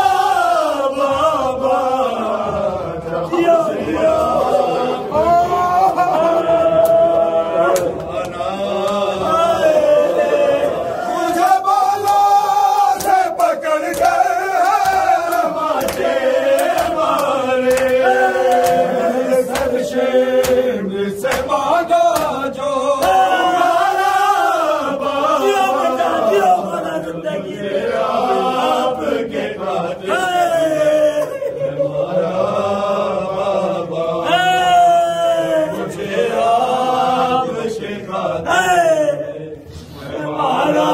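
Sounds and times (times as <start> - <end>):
men chanting a mourning lament: 0.0 - 40.9.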